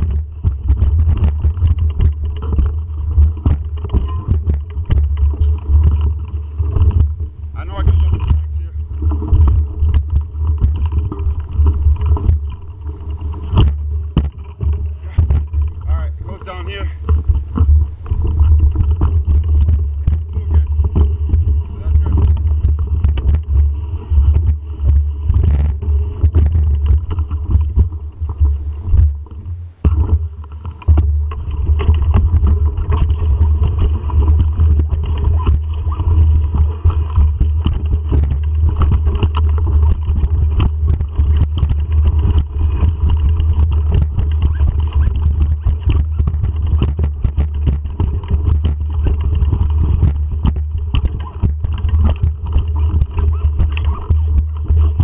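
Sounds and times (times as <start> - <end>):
bike knocks and rattles: 0.0 - 55.0
bike rumbling over rocks: 0.0 - 55.0.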